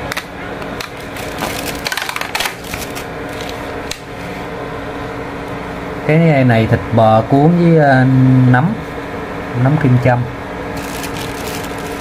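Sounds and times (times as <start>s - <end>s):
steady low hum: 0.0s - 12.0s
plastic container crackling: 1.0s - 3.6s, 10.8s - 12.0s.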